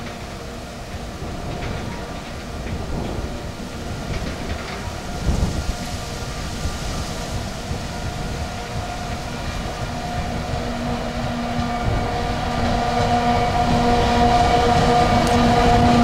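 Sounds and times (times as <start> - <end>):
diesel locomotive engine drone: 0.0 - 16.0
train wagons rumbling on track: 0.0 - 16.0.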